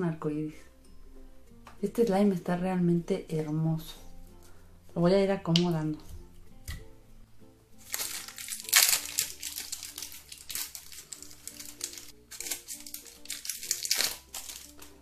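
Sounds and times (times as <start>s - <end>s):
background music: 0.0s - 15.0s
plastic wrapping crinkling: 7.8s - 15.0s.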